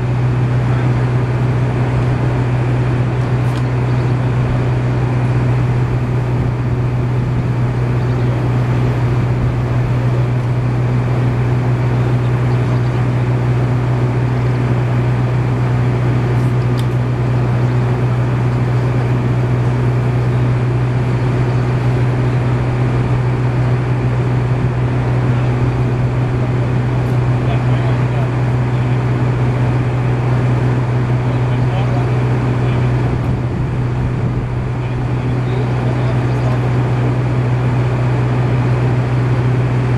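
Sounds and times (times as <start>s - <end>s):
engine droning steadily: 0.0s - 39.9s.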